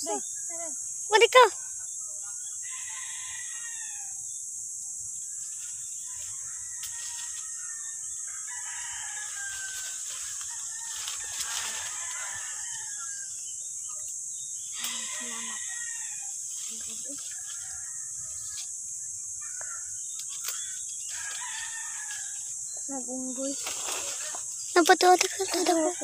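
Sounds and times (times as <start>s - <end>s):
high insect drone: 0.0s - 26.0s
rooster crowing: 2.6s - 4.2s, 6.1s - 13.3s, 14.8s - 16.4s, 17.2s - 18.6s, 21.1s - 22.5s.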